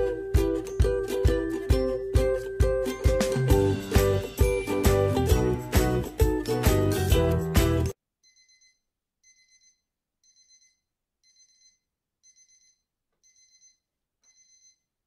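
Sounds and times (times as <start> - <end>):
outro music: 0.0 - 8.0.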